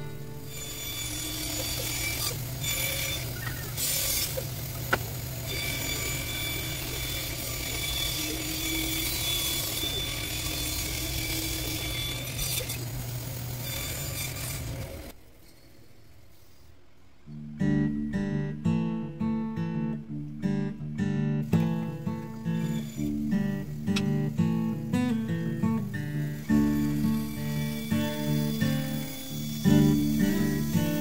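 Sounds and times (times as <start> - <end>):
band saw cutting wood: 0.0 - 15.2, 21.4 - 31.0.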